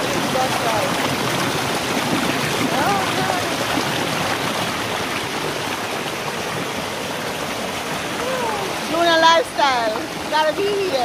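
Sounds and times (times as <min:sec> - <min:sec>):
river water rushing over rocks: 0:00.0 - 0:11.0
voice calling out: 0:08.2 - 0:08.9.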